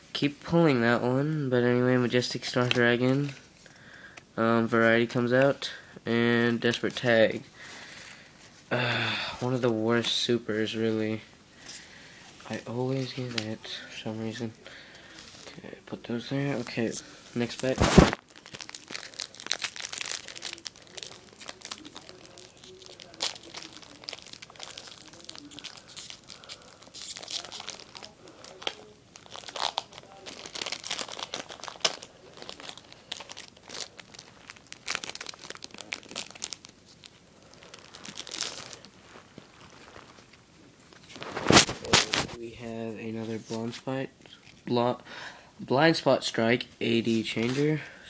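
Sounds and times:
cards being handled: 2.4 - 3.5, 16.4 - 33.9, 37.9 - 44.6, 47.0 - 47.8
foil wrapper tearing and crinkling: 17.4 - 42.4.

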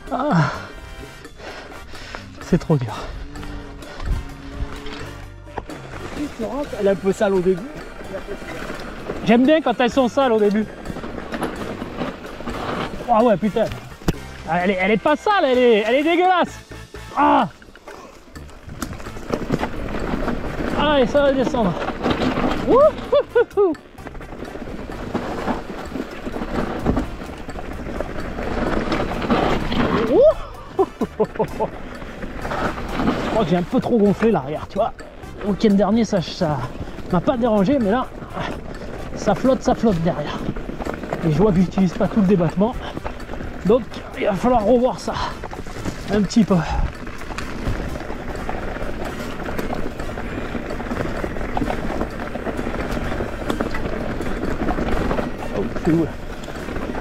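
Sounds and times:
bike rattling: 0.0 - 57.0
tyres crunching over stones: 0.0 - 57.0
wind noise on microphone: 3.0 - 6.8.

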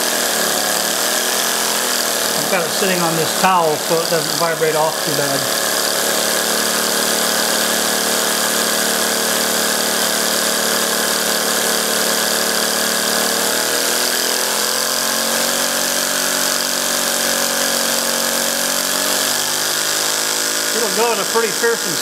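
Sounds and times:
small air engine buzzing: 0.0 - 22.0
air hissing: 2.3 - 5.4.

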